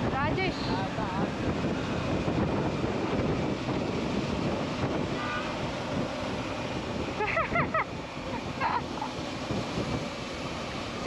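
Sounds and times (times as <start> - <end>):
road noise: 0.0 - 11.0
wind rushing over microphone: 0.0 - 11.0.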